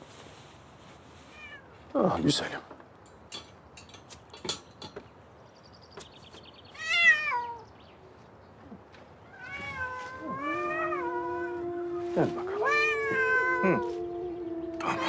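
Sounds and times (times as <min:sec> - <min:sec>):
wire-mesh cage clicks and rattles: 0:03.0 - 0:05.0
cat meowing: 0:06.8 - 0:07.6, 0:09.2 - 0:15.0.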